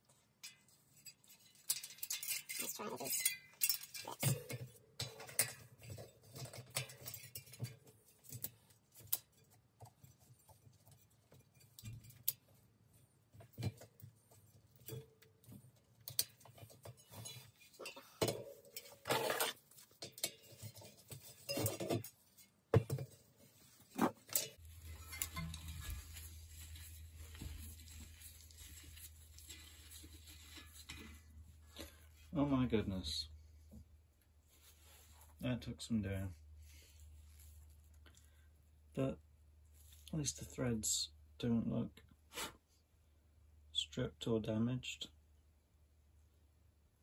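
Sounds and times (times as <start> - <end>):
hand tools clinking on metal: 0.4 - 8.5, 24.0 - 28.6
low steady hum: 24.3 - 41.6.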